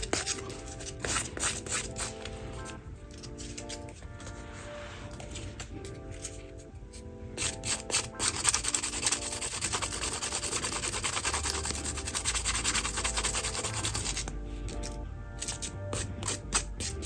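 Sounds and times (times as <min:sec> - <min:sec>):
nail file rubbing on pen: 0:00.0 - 0:03.9, 0:07.4 - 0:14.3, 0:15.4 - 0:17.0.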